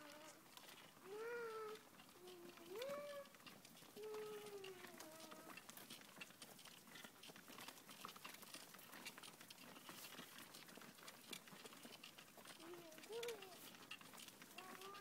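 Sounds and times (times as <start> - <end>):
person humming: 1.1 - 3.1.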